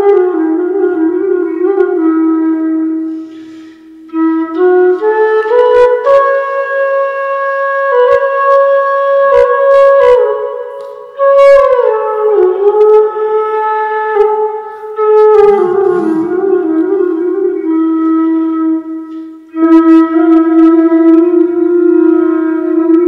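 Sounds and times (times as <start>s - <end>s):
slow wind instrument melody: 0.0s - 23.0s.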